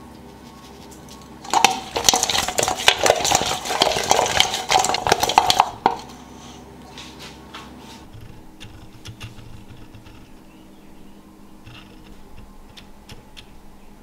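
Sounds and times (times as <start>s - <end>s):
wings rattling in metal bowl: 0.8s - 6.3s.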